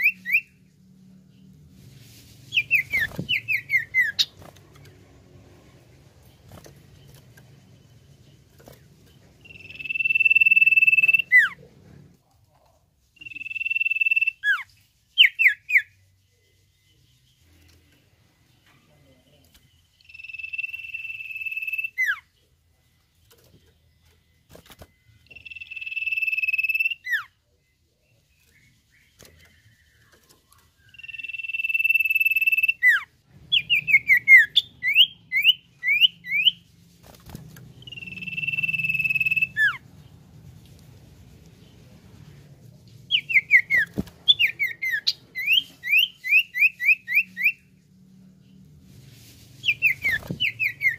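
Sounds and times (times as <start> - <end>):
bird whistling: 2.5 - 4.3, 9.4 - 11.5, 13.2 - 14.6, 25.4 - 27.3, 30.8 - 36.6, 37.8 - 39.8, 43.1 - 47.6, 49.6 - 50.9.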